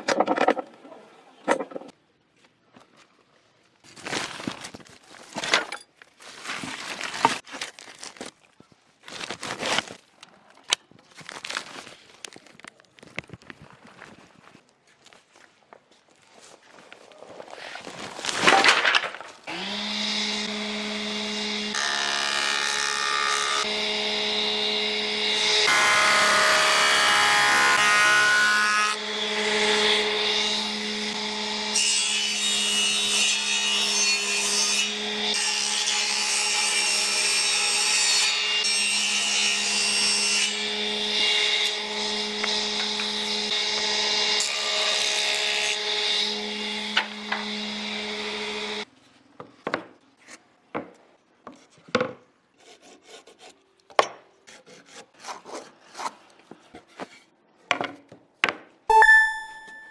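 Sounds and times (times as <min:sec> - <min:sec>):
power tool cutting wood: 0:19.5 - 0:37.6, 0:38.2 - 0:48.9.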